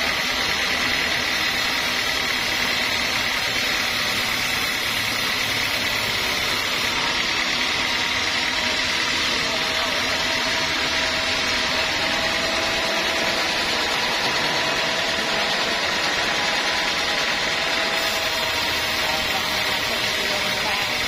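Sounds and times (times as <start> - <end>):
band saw cutting log: 0.0 - 21.0.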